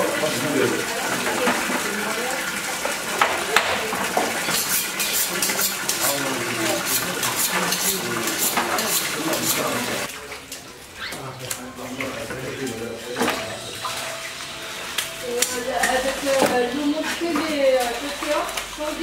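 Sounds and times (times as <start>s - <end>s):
knife scraping fish flesh: 4.4s - 9.8s.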